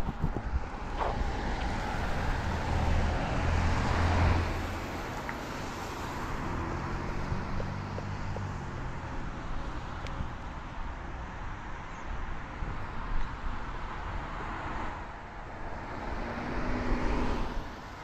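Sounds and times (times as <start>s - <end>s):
low engine hum: 0.0s - 11.4s
road traffic passing: 0.0s - 18.0s.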